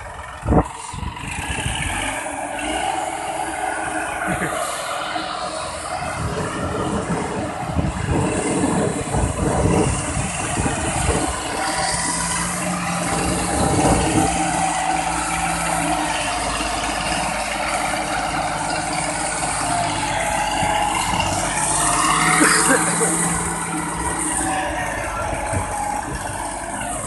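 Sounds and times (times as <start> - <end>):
tractor diesel engine rattling: 0.0 - 27.0.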